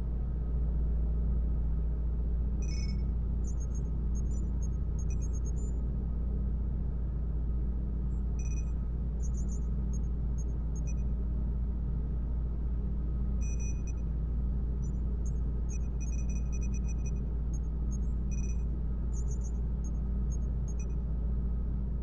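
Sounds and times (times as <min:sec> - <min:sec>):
deep rumble and hum: 0:00.0 - 0:22.0
short electronic beeps: 0:02.6 - 0:05.7, 0:08.1 - 0:09.6, 0:13.4 - 0:14.0, 0:14.8 - 0:17.2, 0:17.9 - 0:19.6.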